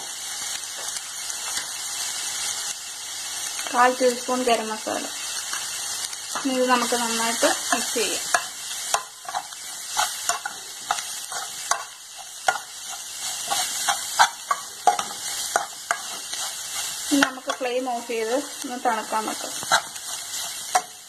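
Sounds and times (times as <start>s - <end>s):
food sizzling in a pan: 0.0s - 21.0s
spoon scraping and tapping pan: 7.6s - 17.7s, 19.4s - 21.0s.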